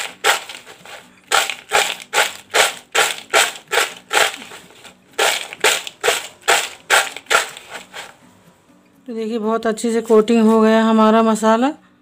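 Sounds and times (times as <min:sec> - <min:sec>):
chips rattling in plastic bowl: 0:00.0 - 0:08.1.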